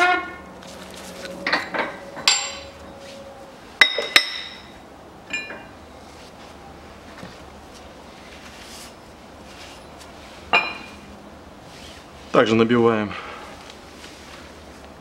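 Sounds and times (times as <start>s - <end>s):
ringing metal clinks: 3.8s - 5.7s.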